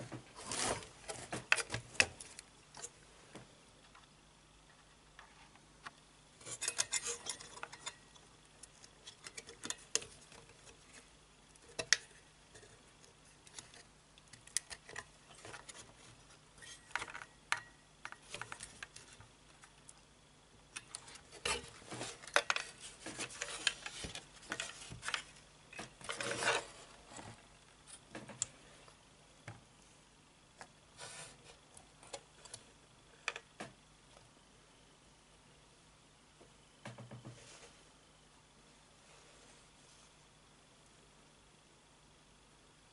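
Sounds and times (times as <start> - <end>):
hands handling computer parts: 0.0 - 19.9, 20.7 - 28.5.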